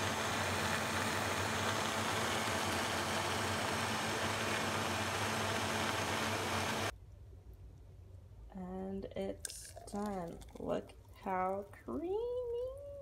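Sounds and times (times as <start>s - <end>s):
blender motor running: 0.0s - 6.9s.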